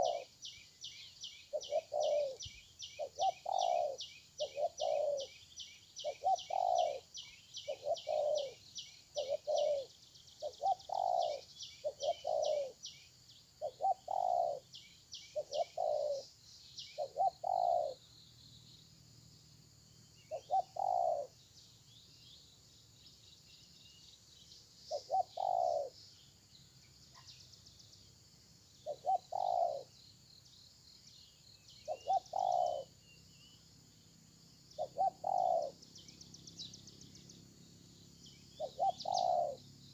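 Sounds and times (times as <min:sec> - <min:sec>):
doves cooing: 0:00.0 - 0:00.3, 0:01.5 - 0:05.3, 0:06.0 - 0:12.8, 0:13.6 - 0:14.7, 0:15.3 - 0:16.2, 0:17.0 - 0:18.0, 0:20.3 - 0:21.3, 0:24.9 - 0:26.0, 0:28.8 - 0:29.9, 0:31.9 - 0:33.0, 0:34.8 - 0:35.8, 0:38.6 - 0:39.7
small birds chirping rapidly: 0:00.0 - 0:19.0, 0:20.0 - 0:39.9.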